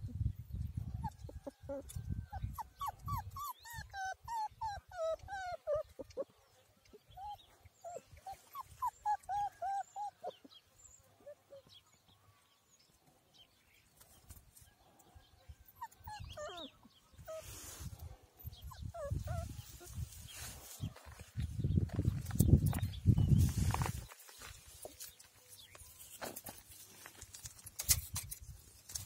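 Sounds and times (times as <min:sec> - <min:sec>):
puppy whimpering: 0:01.1 - 0:06.2, 0:07.1 - 0:10.5, 0:15.7 - 0:17.6, 0:18.4 - 0:19.9.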